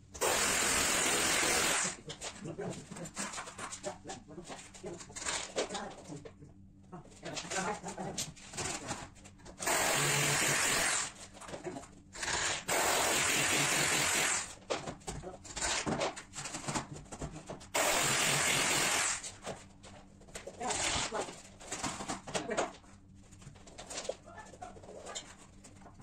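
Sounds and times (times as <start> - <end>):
power drill running: 0.2 - 2.0, 9.6 - 11.1, 12.2 - 14.5, 17.8 - 19.2.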